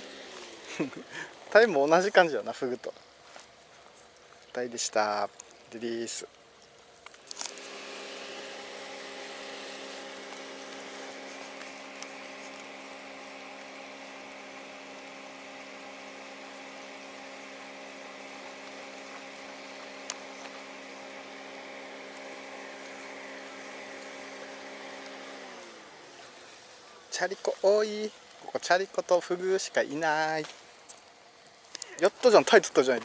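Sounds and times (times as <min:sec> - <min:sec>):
machine humming: 0:00.0 - 0:02.5, 0:05.4 - 0:33.0.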